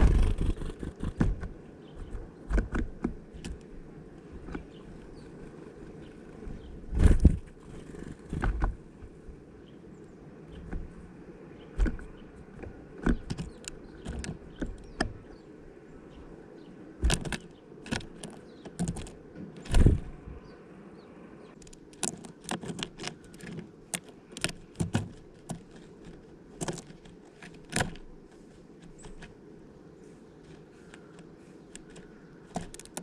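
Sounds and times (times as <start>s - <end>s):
seeds shifting: 0.0s - 1.4s
birds pecking at plastic feeder: 0.0s - 9.2s, 11.6s - 15.3s, 17.0s - 20.1s, 21.6s - 33.0s.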